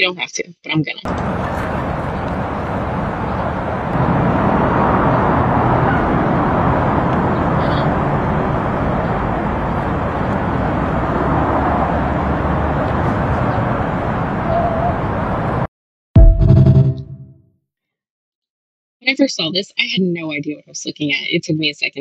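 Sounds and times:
street ambience low rumble: 1.0 - 15.7.

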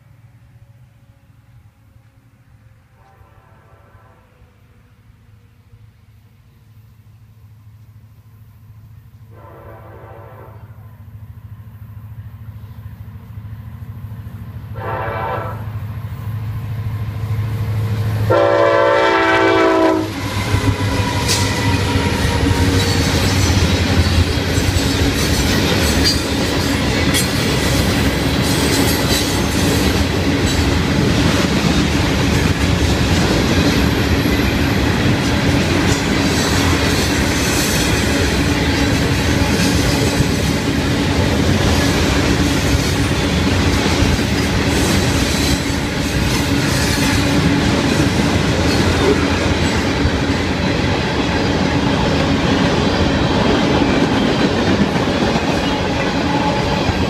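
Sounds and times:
locomotive air horn blasts: 2.8 - 5.0, 9.3 - 11.0, 14.7 - 15.9, 18.3 - 23.0
train wheels clickety-clack: 17.5 - 57.0.

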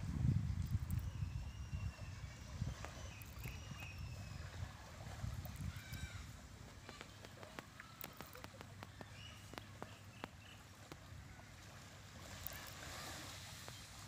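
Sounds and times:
low wind rumble: 0.0 - 6.7
small waves washing on sand: 2.1 - 14.0.

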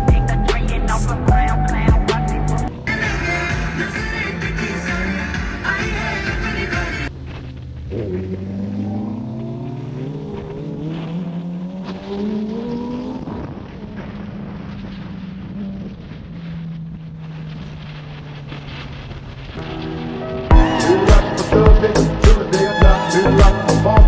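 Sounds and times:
wind and road noise: 0.0 - 24.0
motorcycle engine accelerating: 2.6 - 20.7.

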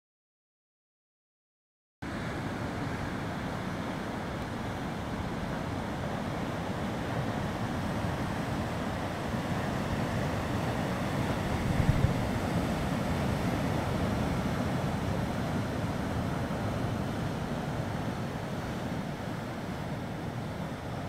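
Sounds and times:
wind buffeting microphone: 7.6 - 18.2.

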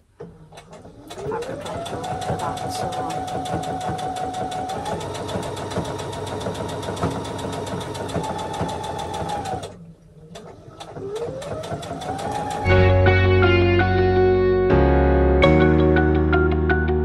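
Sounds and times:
sewing machine stitching: 0.5 - 12.7.

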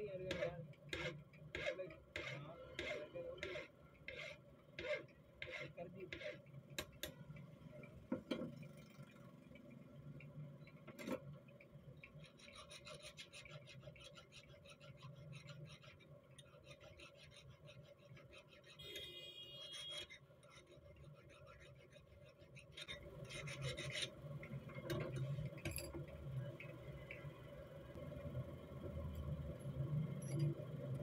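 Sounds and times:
needle file scraping: 0.1 - 6.5, 12.2 - 19.0, 19.6 - 24.2
hand filing on steel: 0.3 - 6.4, 12.2 - 18.8.

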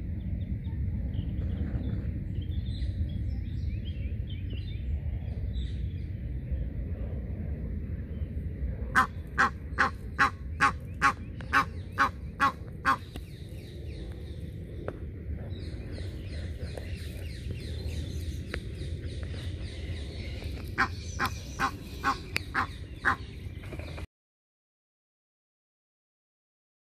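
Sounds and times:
goose honking harshly: 9.0 - 13.0.

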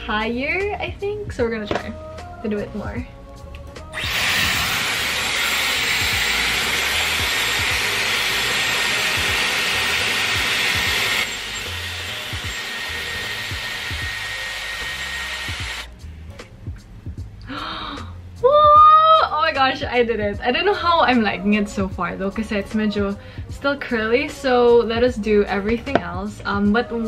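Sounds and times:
hair styler air rushing: 4.0 - 15.9.

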